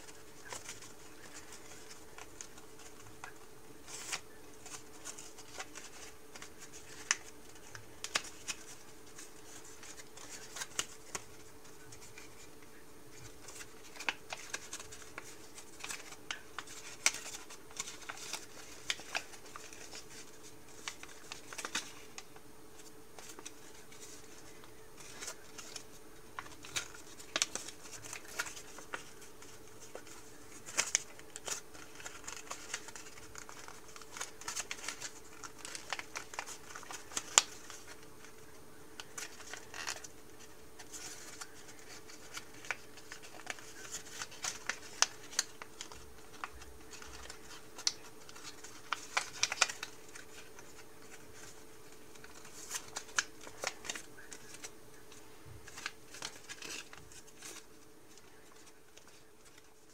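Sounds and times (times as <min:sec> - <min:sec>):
faint steady hum: 0:00.0 - 0:59.9
paper crinkling and rustling: 0:00.0 - 0:59.9.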